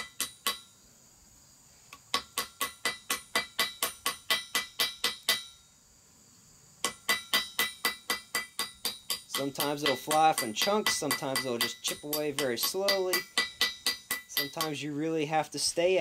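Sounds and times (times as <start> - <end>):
hammer tapping metal ball: 6.8 - 14.8.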